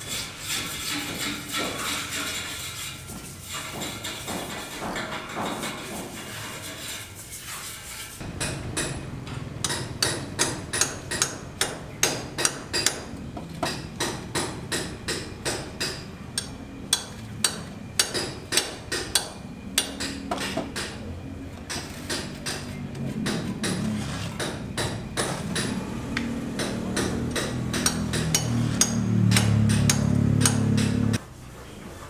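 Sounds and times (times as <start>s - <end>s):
trowel scraping plaster: 0.0s - 8.3s, 23.7s - 24.4s
hammer striking masonry: 0.6s - 2.3s, 3.5s - 6.6s, 8.2s - 21.0s, 21.6s - 31.2s.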